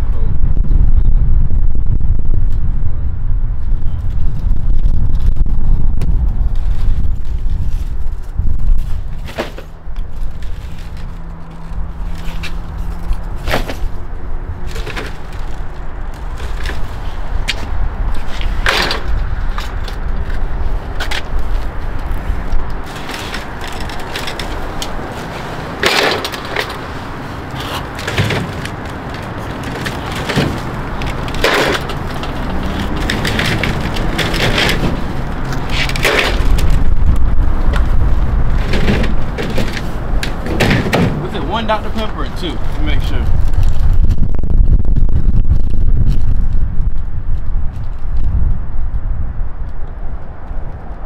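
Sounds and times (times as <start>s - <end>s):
low rumble: 0.0s - 51.0s
plastic bottles and crates clattering: 22.9s - 36.7s, 38.6s - 41.6s.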